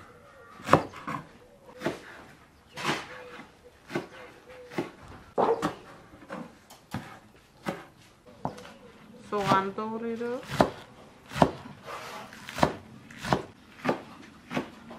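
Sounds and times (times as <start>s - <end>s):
cleaver chopping on wooden board: 10.4s - 11.7s, 12.4s - 14.9s.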